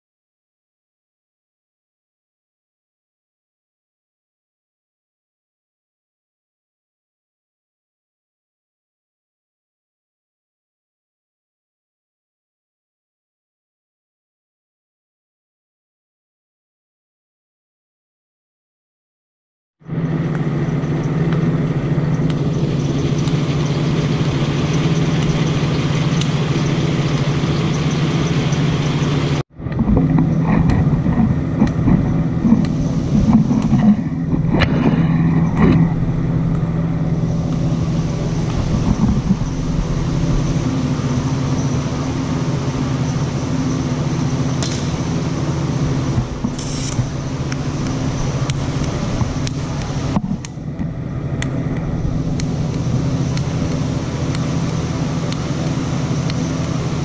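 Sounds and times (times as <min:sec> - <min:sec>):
welder electrical hum: 0:19.8 - 0:57.0.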